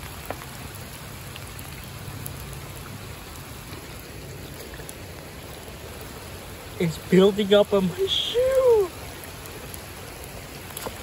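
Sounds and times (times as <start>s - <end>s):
rain on asphalt road: 0.0s - 11.0s
water running along curb: 0.0s - 11.0s.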